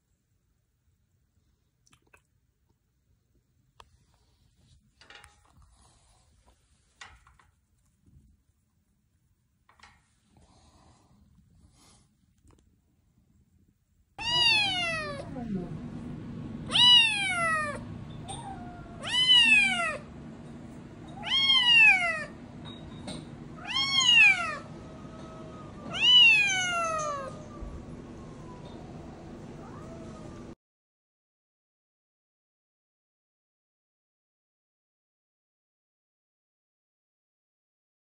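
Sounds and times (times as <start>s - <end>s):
steady low hum: 9.7s - 30.6s
cat meowing loudly: 14.2s - 15.3s, 16.6s - 20.1s, 21.2s - 22.4s, 23.6s - 27.8s, 29.6s - 30.6s.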